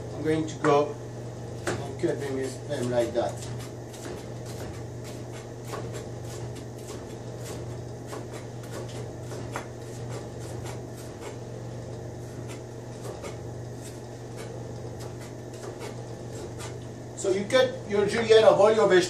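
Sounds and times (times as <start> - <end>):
constant low hum: 0.0 - 19.0.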